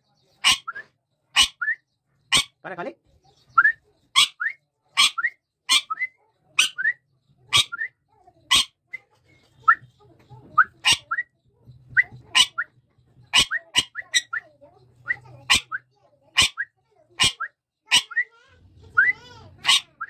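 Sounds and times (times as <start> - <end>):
parakeet shrieks: 0.4 - 0.8, 1.4 - 1.7, 2.3 - 2.6, 19.6 - 20.0.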